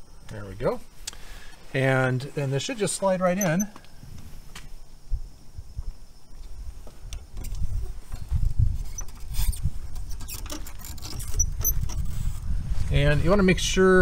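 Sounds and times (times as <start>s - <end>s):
rubber scratchy rubbing: 8.7s - 12.4s.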